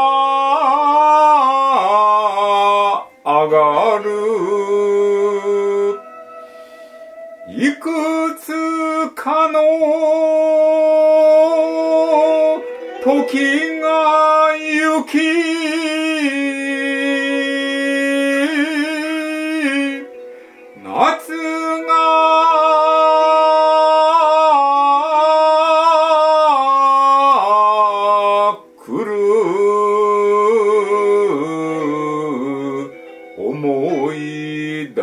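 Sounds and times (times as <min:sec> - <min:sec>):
instrumental accompaniment: 0:00.0 - 0:35.0
woman breathing: 0:06.2 - 0:07.4, 0:20.2 - 0:20.8.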